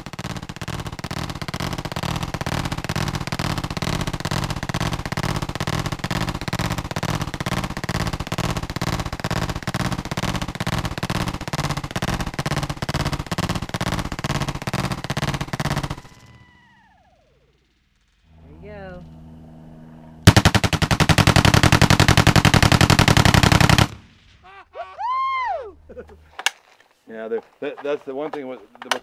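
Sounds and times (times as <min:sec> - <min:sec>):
automatic gunfire burst: 0:00.0 - 0:16.8, 0:20.2 - 0:24.2.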